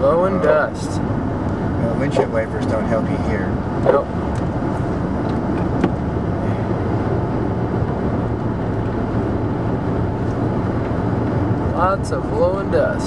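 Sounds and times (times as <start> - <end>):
road noise in vehicle cabin: 0.0 - 13.0
strong wind: 0.6 - 13.0.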